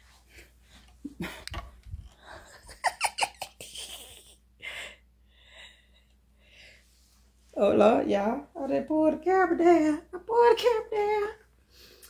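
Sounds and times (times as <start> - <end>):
breaths: 4.6 - 7.2.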